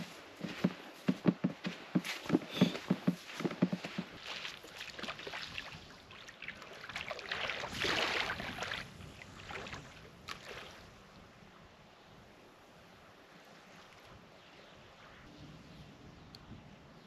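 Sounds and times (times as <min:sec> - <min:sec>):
sea water splashing around legs: 0:01.8 - 0:10.8.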